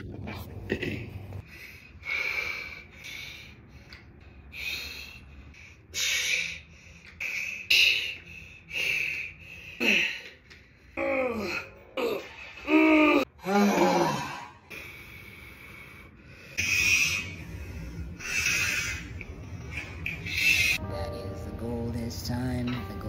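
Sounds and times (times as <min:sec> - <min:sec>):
man groaning: 0:11.0 - 0:14.6.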